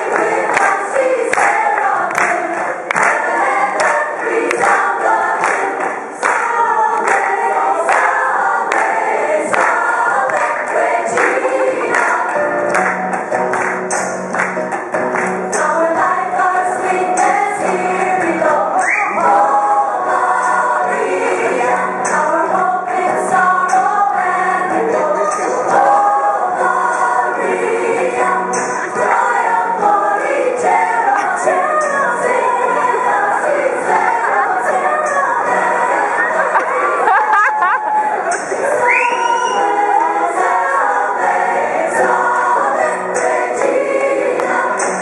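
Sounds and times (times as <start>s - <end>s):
gospel choir singing: 0.0s - 13.2s, 15.3s - 45.0s
hand claps: 0.0s - 15.7s, 31.1s - 31.4s.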